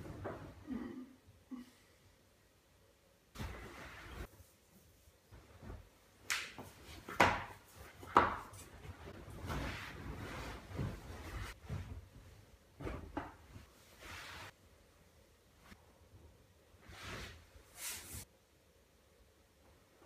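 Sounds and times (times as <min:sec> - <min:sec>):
blanket rustling: 0:03.4 - 0:14.6.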